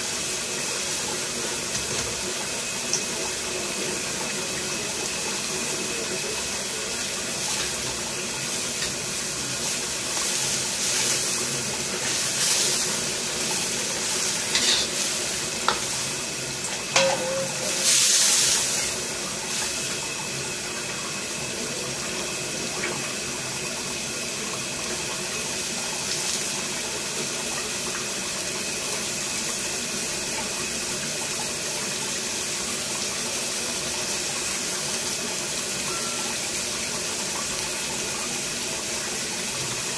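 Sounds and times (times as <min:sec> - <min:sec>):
water boiling in a wok: 0:00.0 - 0:39.9
metal ladle clinking on wok: 0:17.0 - 0:17.7.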